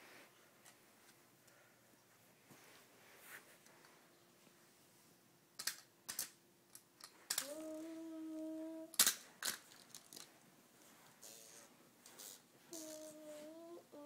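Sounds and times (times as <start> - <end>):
toy trucks clacking together: 5.6 - 7.6, 8.9 - 10.3
child humming: 7.4 - 9.0, 11.2 - 14.0.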